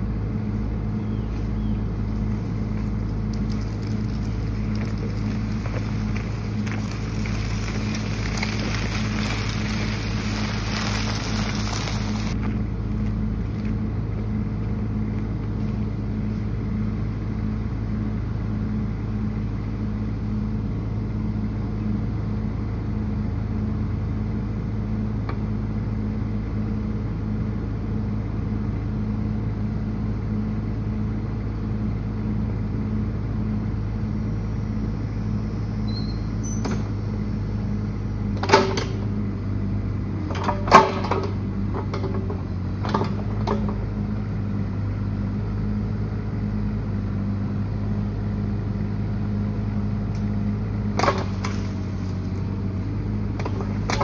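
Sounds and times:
diesel engine droning: 0:00.0 - 0:54.0
bright hiss: 0:09.0 - 0:12.4.

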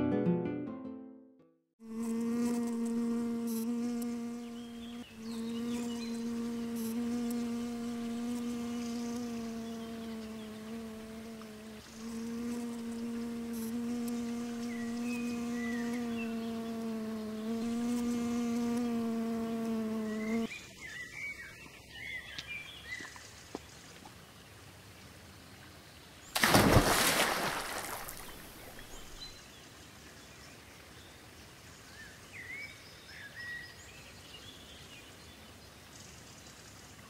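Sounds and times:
bee buzzing: 0:01.8 - 0:20.5, 0:26.4 - 0:29.3
bird chirps: 0:13.8 - 0:23.1
loud splash: 0:26.4 - 0:29.0.

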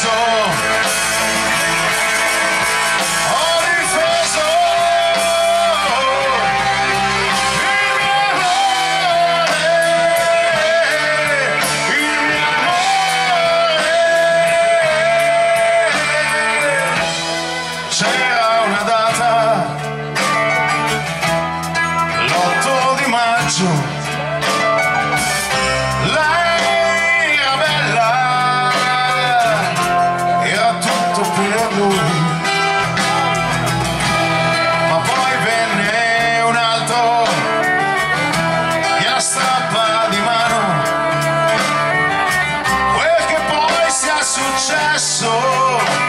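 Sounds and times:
drum kit: 0:00.0 - 0:46.0
electric bass: 0:00.0 - 0:46.0
electric guitar: 0:00.0 - 0:46.0
live band playing: 0:00.0 - 0:46.0
violin melody: 0:31.9 - 0:44.7.

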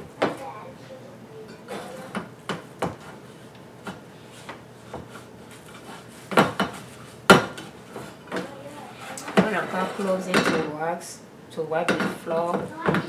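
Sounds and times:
soft rubbing: 0:04.2 - 0:10.3.

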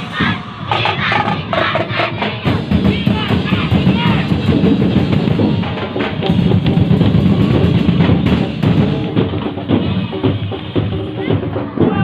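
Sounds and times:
bass and snare drumming: 0:00.0 - 0:12.0.

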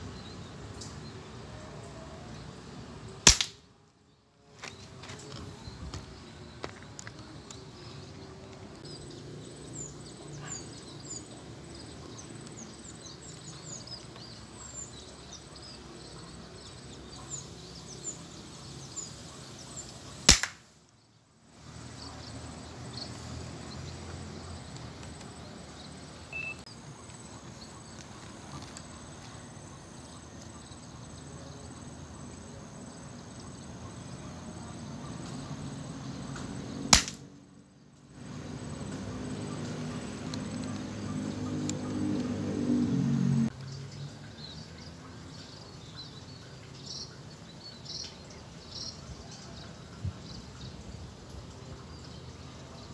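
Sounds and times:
steady outdoor background: 0:00.0 - 0:52.9
air rifle shot: 0:03.3 - 0:03.6, 0:20.3 - 0:20.7, 0:36.9 - 0:37.2
small birds chirping: 0:04.5 - 0:36.9, 0:37.7 - 0:42.4, 0:43.0 - 0:52.9.

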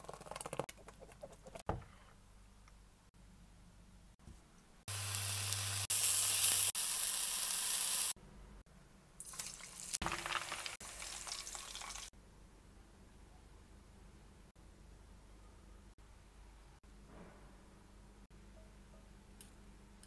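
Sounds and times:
scallops sizzling in hot oil: 0:04.9 - 0:08.2, 0:09.2 - 0:12.1.

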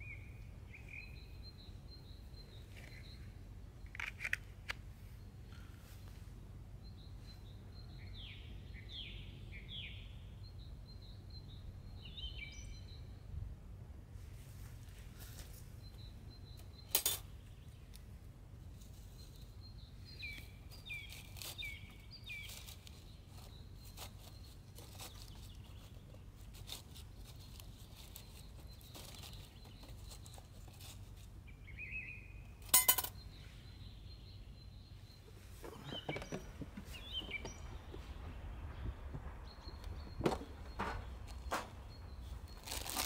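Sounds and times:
birds chirping: 0:00.0 - 0:13.3, 0:15.4 - 0:43.0
light clattering: 0:35.3 - 0:38.4
low steady rumble: 0:36.4 - 0:42.8.

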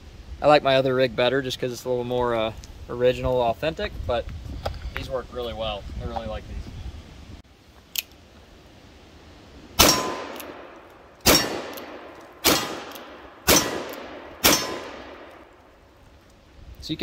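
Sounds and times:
revolver shots: 0:09.8 - 0:15.3.

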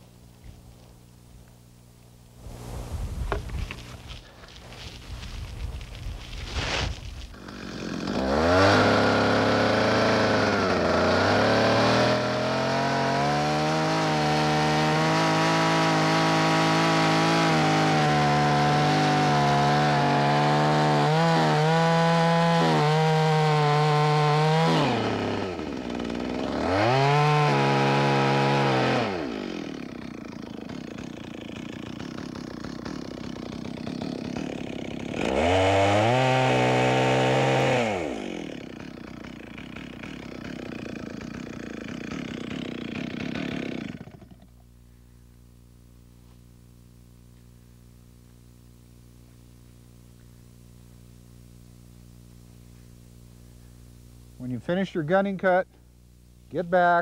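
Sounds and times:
chainsaw cutting into tree trunk: 0:02.4 - 0:44.7
chainsaw idling and revving: 0:03.3 - 0:44.7.

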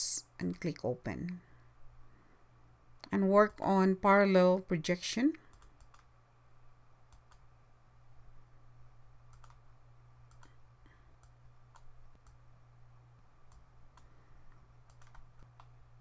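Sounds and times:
low steady hum: 0:00.0 - 0:16.0
computer mouse clicks: 0:05.4 - 0:06.1, 0:07.1 - 0:07.5, 0:09.3 - 0:09.6, 0:10.3 - 0:10.6, 0:11.2 - 0:12.4, 0:13.5 - 0:15.8.

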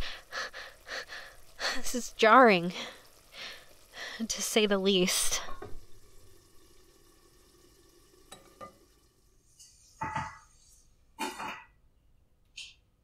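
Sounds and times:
bacon sizzling in a pan: 0:00.0 - 0:09.1.

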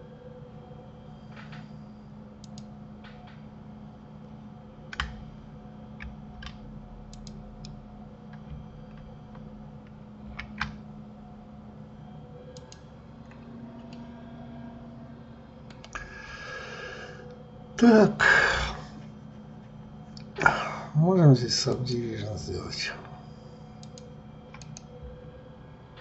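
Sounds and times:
steady low hum: 0:00.0 - 0:26.0
keyboard and mouse clicks: 0:02.4 - 0:03.3, 0:06.0 - 0:09.4, 0:12.5 - 0:12.8, 0:23.8 - 0:24.9.

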